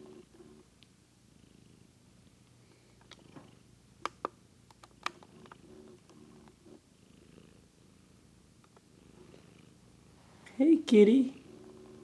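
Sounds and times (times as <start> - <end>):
cat purring: 1.3 - 3.8, 4.9 - 10.5.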